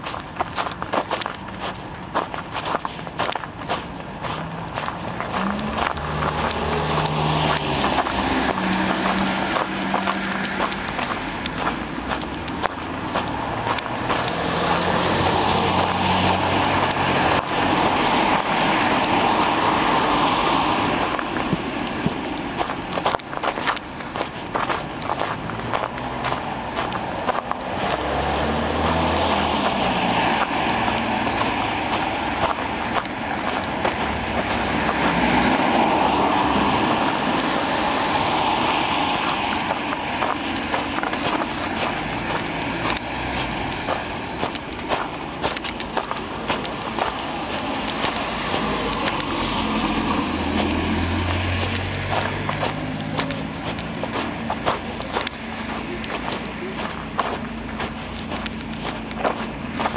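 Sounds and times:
low car engine hum: 0.0 - 59.9
tyre hiss on wet street: 14.3 - 22.9, 26.0 - 44.3, 46.2 - 58.6.

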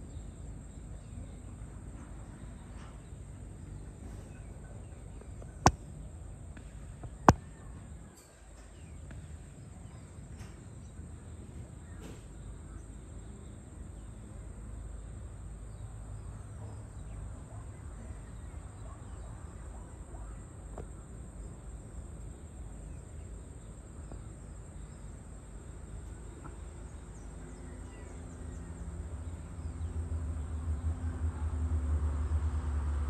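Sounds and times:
vehicle engine approaching: 27.5 - 33.0.

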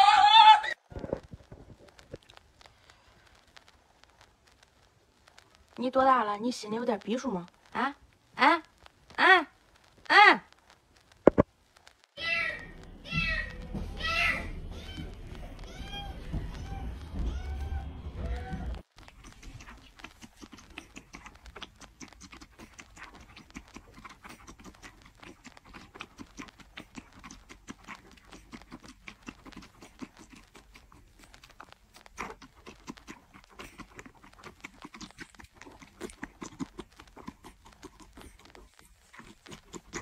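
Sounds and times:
kitten suckling from a bottle: 13.6 - 40.0.

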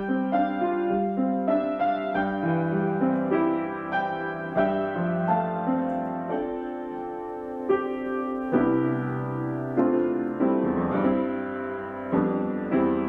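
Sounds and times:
slow solo piano: 0.0 - 13.0.

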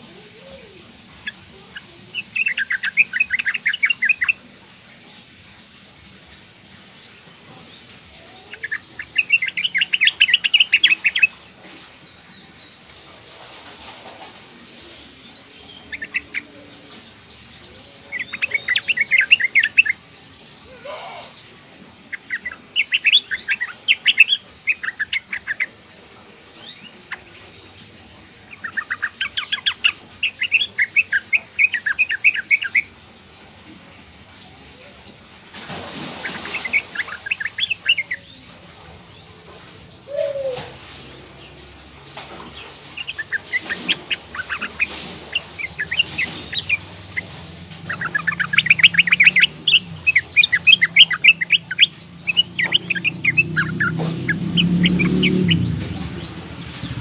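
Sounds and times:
bird call bubbling notes: 47.9 - 55.6.

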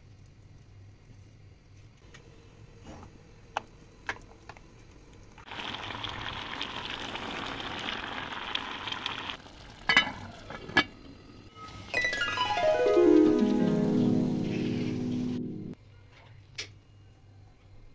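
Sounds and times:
pot bubbling and sizzling: 2.1 - 15.8
music: 11.6 - 15.8.

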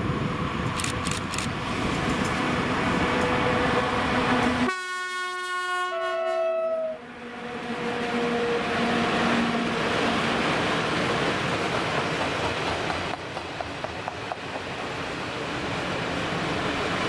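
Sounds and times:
train wagons rumbling on rails: 0.0 - 4.7, 7.3 - 17.0
locomotive horn: 3.3 - 9.9.

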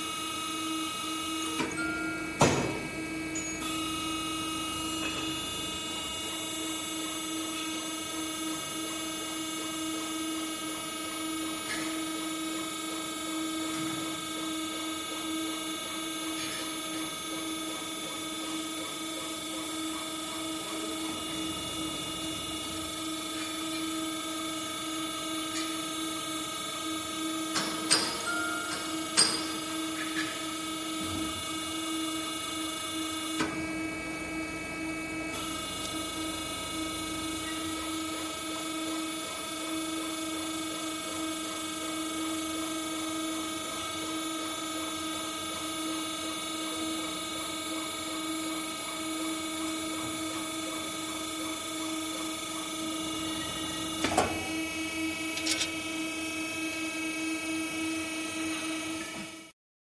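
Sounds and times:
bending machine humming: 0.0 - 59.6
machine clunk: 2.4 - 2.9, 53.0 - 55.8.

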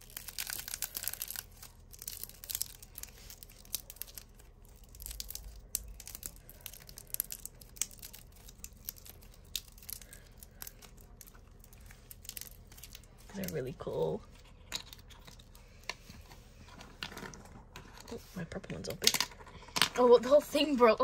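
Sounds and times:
crackle slime crunching: 0.0 - 16.1.

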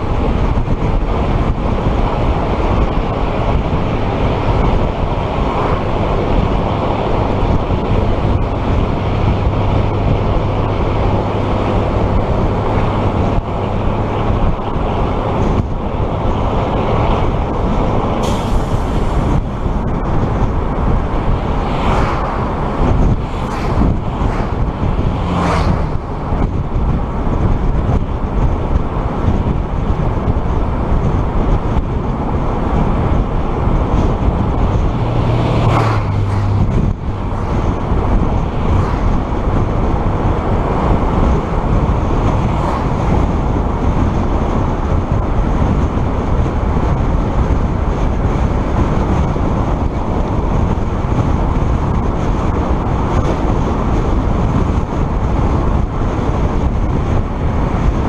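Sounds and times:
vehicle road and engine noise: 0.0 - 58.0
short whooshes: 21.4 - 26.3.

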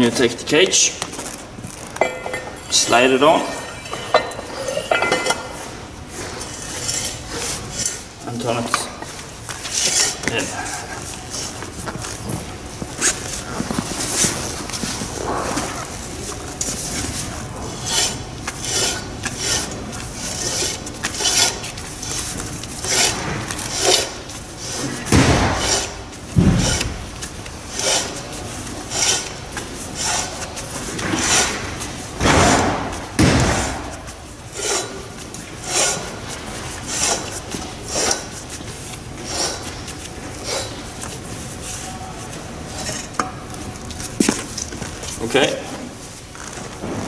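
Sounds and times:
metal-on-metal scraping: 2.0 - 11.6, 16.6 - 25.0.

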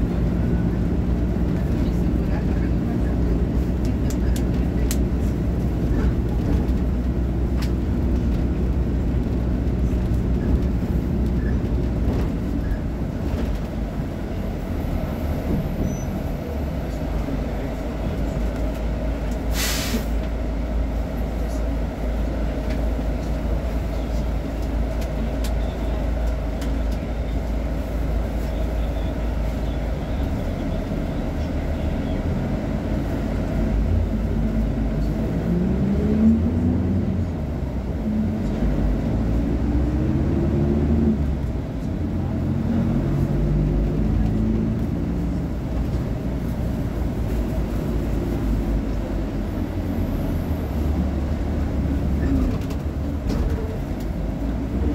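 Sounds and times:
bus diesel engine idling: 0.0 - 35.6, 36.5 - 54.9
compressed air hiss: 19.5 - 20.1.

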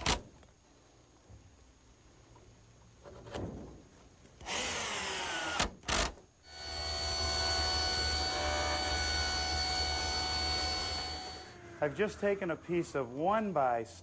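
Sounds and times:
power drill running: 4.4 - 12.6
table saw cutting wood: 6.5 - 12.5.

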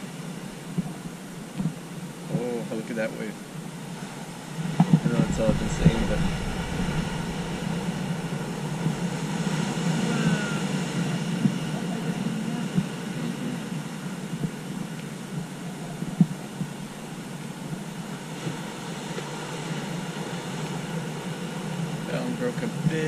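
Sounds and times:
surf breaking on rocks: 2.4 - 15.0.

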